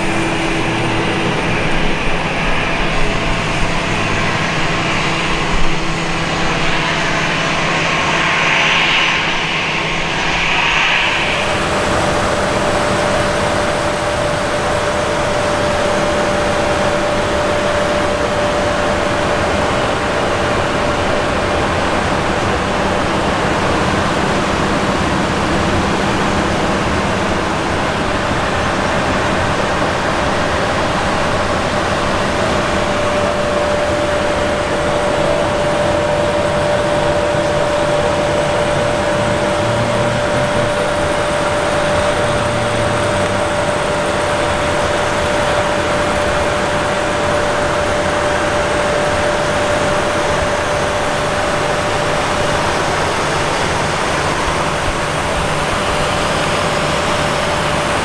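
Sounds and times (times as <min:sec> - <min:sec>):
constant whine: 0:00.0 - 0:58.0
machinery hum: 0:00.0 - 0:58.0
rush of air: 0:00.0 - 0:58.0.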